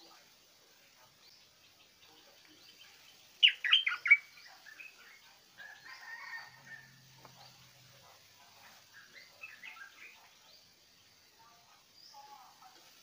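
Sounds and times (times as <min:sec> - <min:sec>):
bulbul calling: 0:01.2 - 0:07.6, 0:08.7 - 0:10.7.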